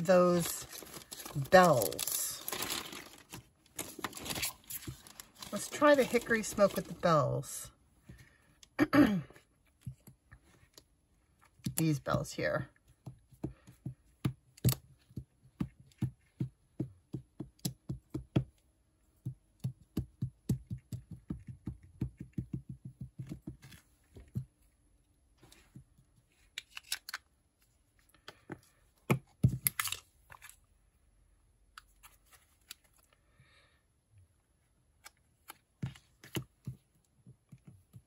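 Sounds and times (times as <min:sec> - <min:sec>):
knocks and handling noises: 0:00.3 - 0:07.0.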